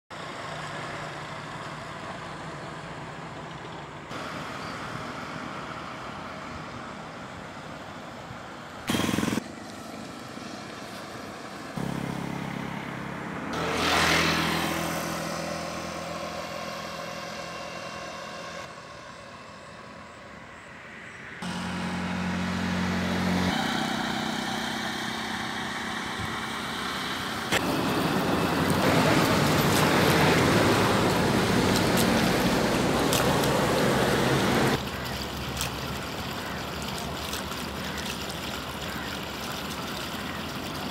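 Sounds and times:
road traffic rumble: 0.1 - 40.9
vehicle passing loudly: 10.3 - 35.0.

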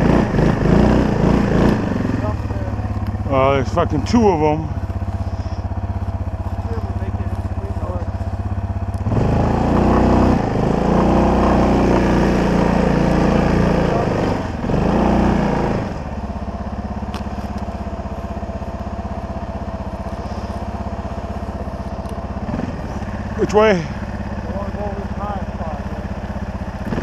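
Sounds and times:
quad bike engine running: 0.0 - 27.0.

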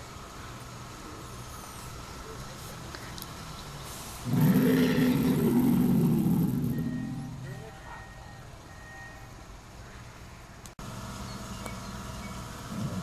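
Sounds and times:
recorded dinosaur roar: 4.2 - 7.5.

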